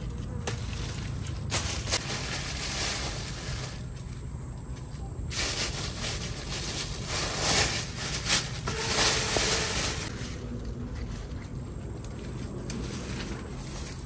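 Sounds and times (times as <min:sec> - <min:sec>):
plastic bag rustling: 0:00.0 - 0:04.3, 0:05.0 - 0:11.6
leaves rustling: 0:00.0 - 0:14.0.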